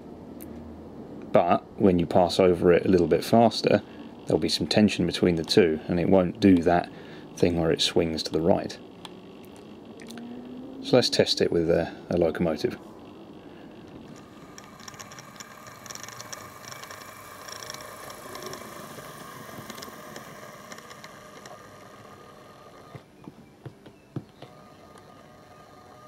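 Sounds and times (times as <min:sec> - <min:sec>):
model train whirring: 0:10.8 - 0:23.1, 0:24.4 - 0:26.0
light clicking and rattling: 0:12.9 - 0:23.1
sharp clicks: 0:12.9 - 0:26.0.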